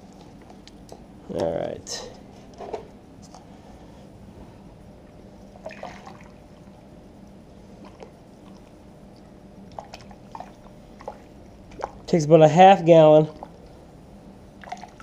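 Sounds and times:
water trickling through funnel: 14.6 - 15.0.

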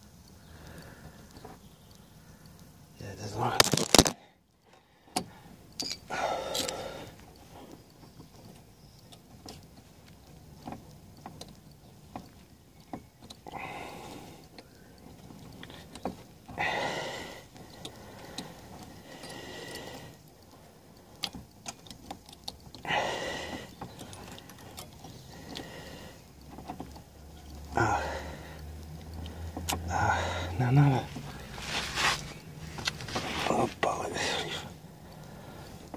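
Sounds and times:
small clicks and rattles: 0.0 - 4.2, 5.1 - 16.6, 17.2 - 33.5
short scraping rustles: 31.1 - 33.8.

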